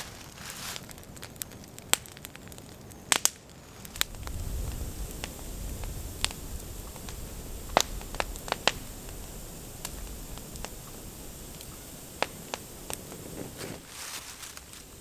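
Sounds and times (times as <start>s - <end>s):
wood fire crackling and popping: 0.0s - 15.0s
low rumble: 4.0s - 13.6s.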